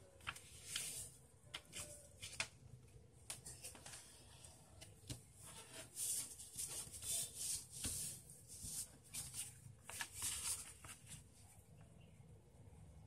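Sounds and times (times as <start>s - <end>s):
paper rustling and folding: 0.0s - 2.6s, 3.3s - 11.4s.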